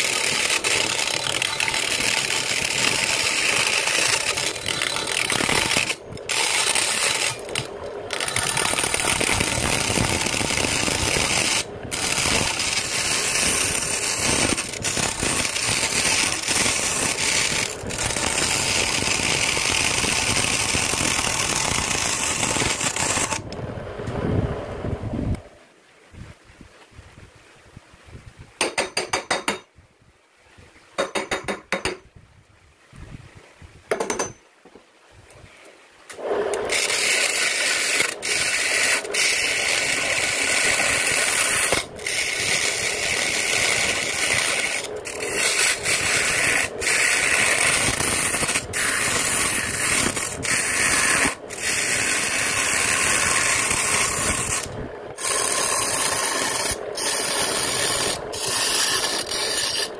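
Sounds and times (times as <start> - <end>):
short rasping bursts: 0.0 - 23.5, 36.2 - 59.9
lathe tool scraping wood: 0.0 - 24.8, 36.2 - 59.9.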